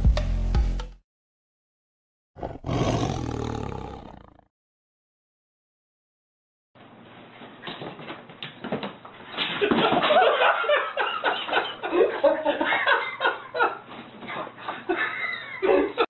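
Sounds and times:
person laughing hard: 14.7 - 16.0.

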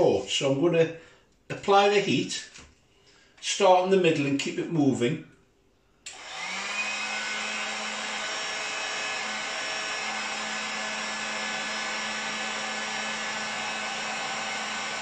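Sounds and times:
heat gun fan blowing: 6.1 - 15.0.

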